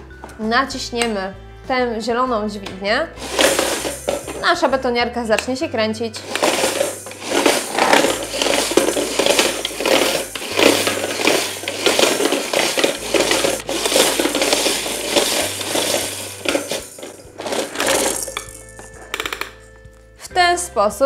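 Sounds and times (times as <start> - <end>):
toy beads rattling in spinning drum: 3.2 - 4.5, 6.2 - 19.6.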